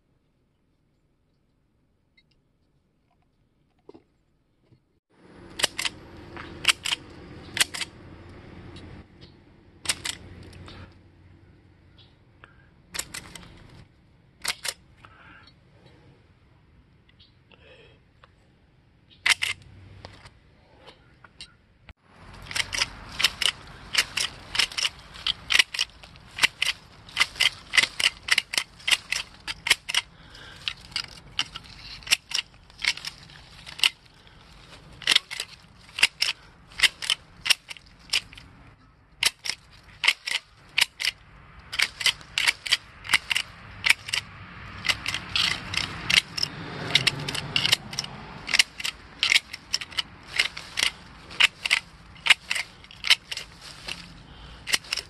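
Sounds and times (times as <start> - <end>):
grass shears snipping: 5.4 - 8.0, 9.8 - 10.9, 13.0 - 13.8, 22.2 - 38.5, 39.2 - 55.0.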